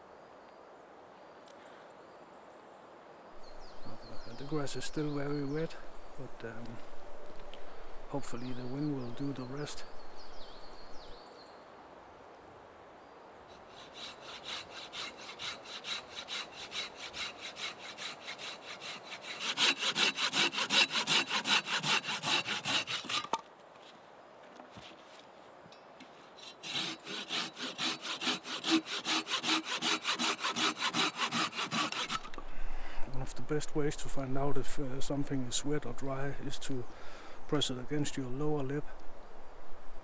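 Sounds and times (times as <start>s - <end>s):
hand saw cutting through log: 13.5s - 23.4s, 26.4s - 32.3s.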